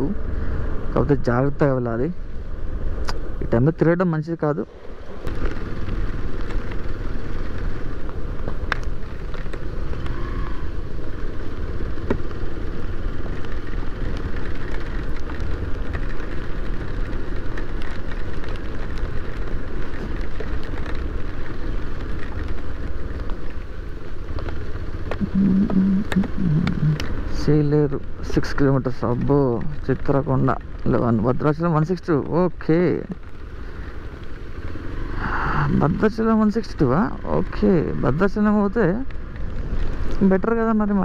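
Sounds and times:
wind noise on microphone: 24.9 - 27.4, 35.0 - 36.4
motorcycle engine running: 25.0 - 27.4
sharp ticks: 25.1 - 27.1.

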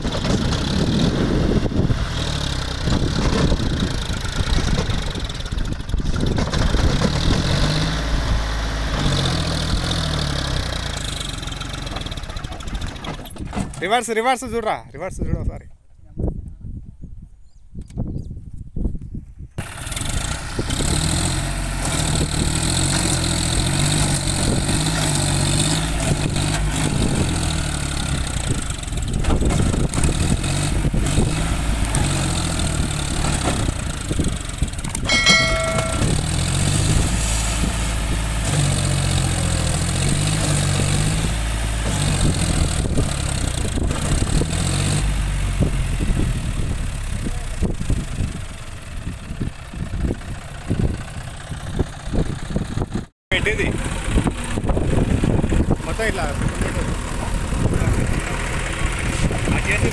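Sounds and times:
tractor diesel engine straining: 0.0 - 14.7, 19.6 - 59.9
short chime: 35.1 - 36.4.

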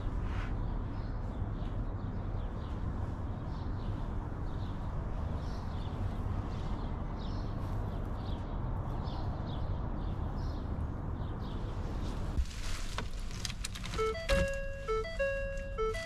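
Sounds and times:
small birds chirping: 0.0 - 12.4
electronic chime tune: 14.0 - 16.0.

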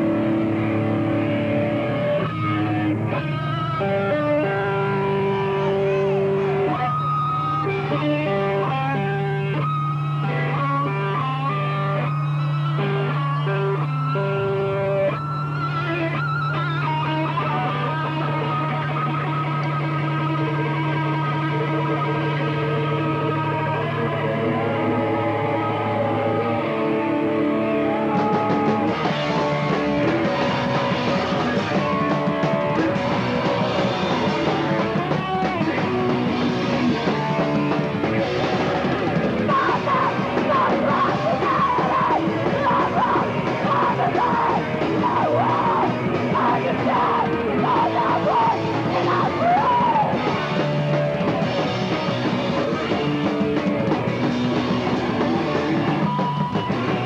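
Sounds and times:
punk band playing live: 0.0 - 57.0
shouted vocals: 23.6 - 32.1, 39.1 - 50.6.

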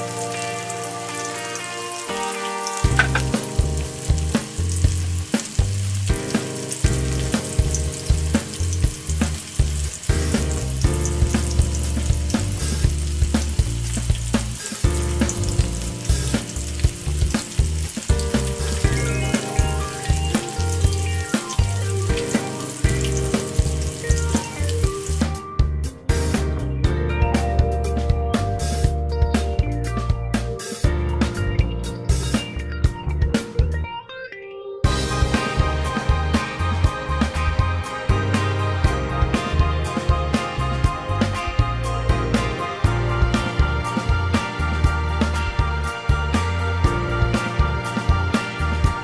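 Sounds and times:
chicken deep-frying in oil: 0.0 - 25.5, 28.3 - 28.9, 30.6 - 32.7, 34.8 - 41.6
background music with beat: 0.0 - 34.1, 34.8 - 49.0.

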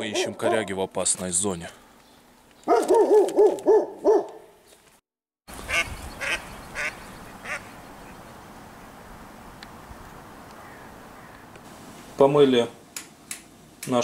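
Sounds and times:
steady outdoor hiss: 5.5 - 14.0
goose honking: 5.7 - 7.7.

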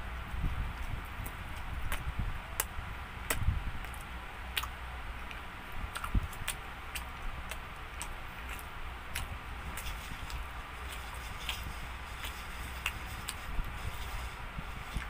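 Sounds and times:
low steady hum: 0.0 - 15.0
person chewing: 3.3 - 15.0.

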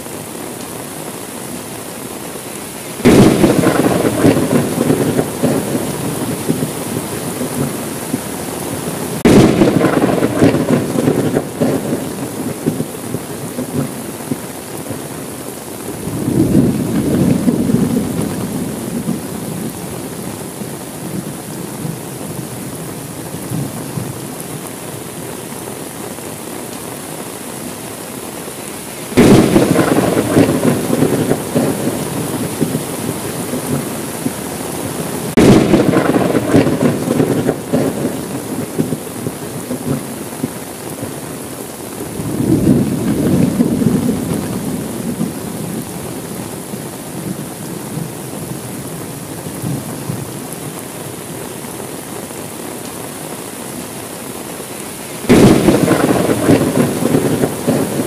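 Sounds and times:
steady rain: 0.0 - 58.0
thunder rumbling: 3.0 - 15.2, 15.9 - 24.3, 29.1 - 41.2, 42.1 - 46.4, 55.2 - 58.0.

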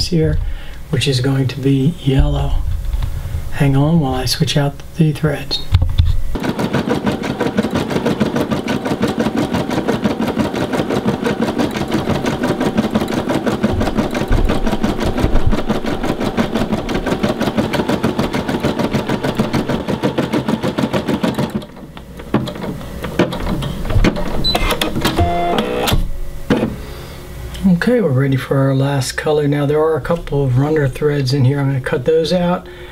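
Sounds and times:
embroidery machine stitching: 6.3 - 26.8.

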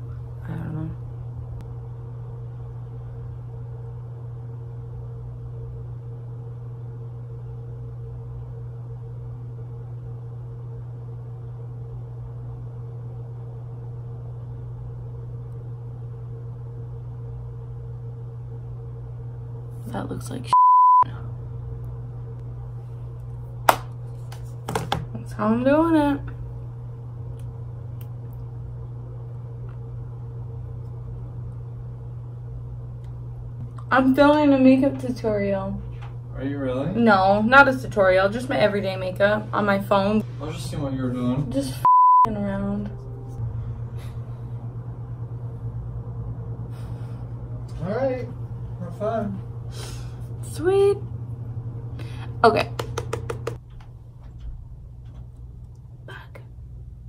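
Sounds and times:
steady low hum: 0.0 - 57.0
high steady tone: 41.8 - 44.1.

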